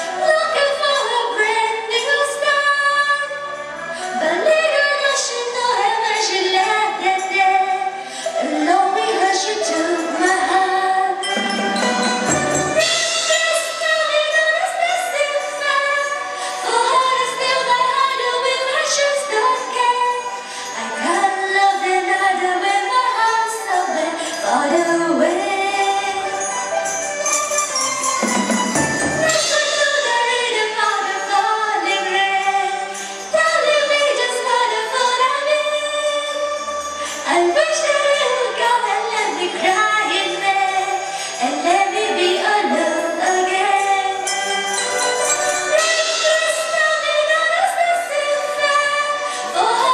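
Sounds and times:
woman singing: 0:00.0 - 0:26.6, 0:28.9 - 0:44.6, 0:45.5 - 0:49.9
orchestra playing: 0:11.2 - 0:14.5, 0:26.3 - 0:31.5.

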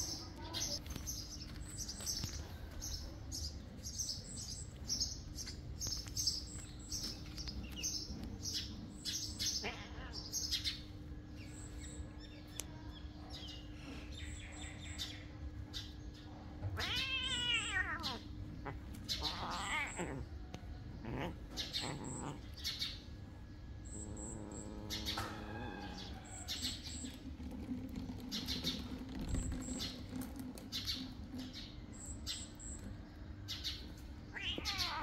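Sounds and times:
steady low hum: 0:00.0 - 0:34.4
small birds chirping: 0:00.0 - 0:35.0
cat meowing: 0:09.5 - 0:10.3, 0:16.7 - 0:20.3, 0:21.0 - 0:22.4, 0:34.3 - 0:35.0.

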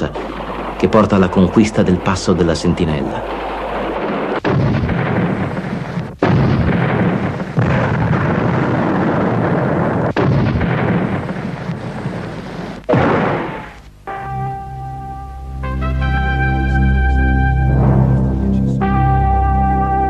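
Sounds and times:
artillery fire and explosions: 0:00.0 - 0:13.8.

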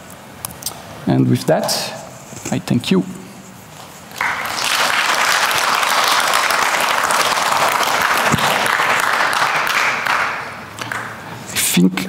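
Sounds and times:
audience applauding: 0:04.2 - 0:11.3.

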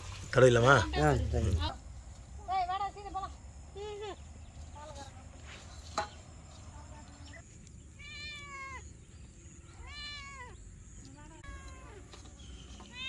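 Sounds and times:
cat meowing: 0:08.0 - 0:08.9, 0:09.7 - 0:10.6.

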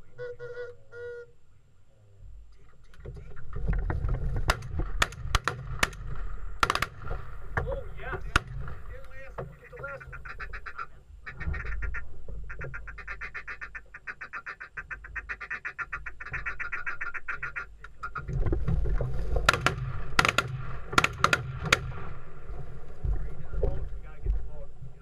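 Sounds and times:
duck call chattering: 0:00.0 - 0:01.4, 0:09.5 - 0:18.3
sharp knocks: 0:03.0 - 0:09.6, 0:18.2 - 0:22.1.

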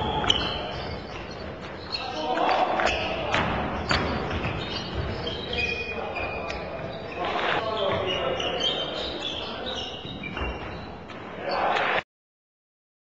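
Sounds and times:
shoes squeaking on floor: 0:00.0 - 0:11.8.

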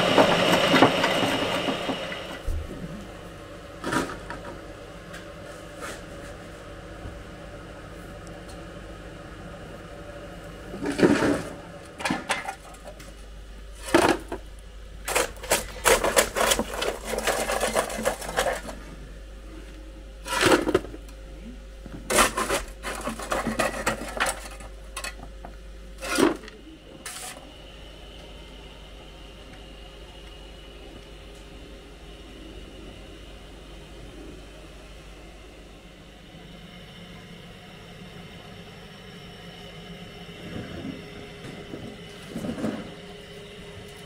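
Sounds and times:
coal lumps clattering: 0:13.8 - 0:18.9, 0:22.0 - 0:25.3, 0:26.0 - 0:27.4
coal rattling: 0:15.0 - 0:18.8, 0:22.1 - 0:25.2
shovel scraping: 0:20.2 - 0:20.8, 0:22.1 - 0:24.6, 0:26.0 - 0:27.4.

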